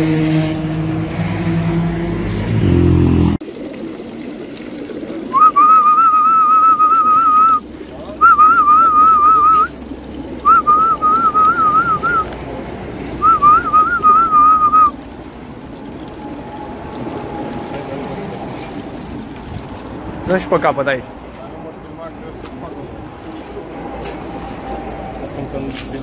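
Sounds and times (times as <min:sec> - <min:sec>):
person whistling high note: 0:05.3 - 0:07.6, 0:08.2 - 0:09.7, 0:10.4 - 0:12.2, 0:13.2 - 0:14.9.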